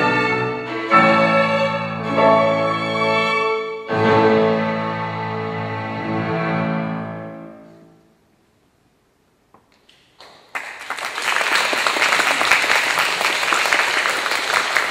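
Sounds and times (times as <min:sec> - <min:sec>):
violin and piano chord: 0:00.0 - 0:08.0
audience applause: 0:10.2 - 0:14.9.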